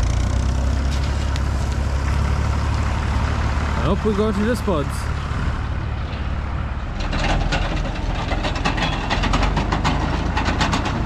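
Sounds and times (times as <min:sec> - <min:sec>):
tractor engine running: 0:00.0 - 0:11.0
harvester spinner clattering: 0:06.9 - 0:11.0.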